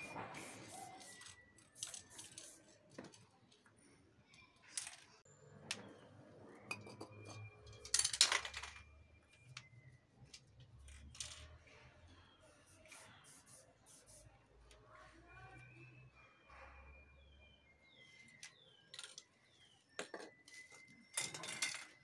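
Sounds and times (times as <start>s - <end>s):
spray can hissing: 0.0s - 2.6s, 12.7s - 14.3s
metal cans clinking: 21.2s - 22.0s.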